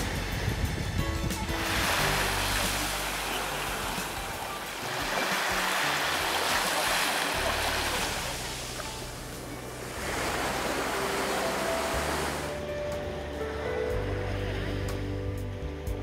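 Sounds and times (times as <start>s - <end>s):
waves breaking on shore: 0.0s - 12.7s
background music: 0.0s - 16.0s.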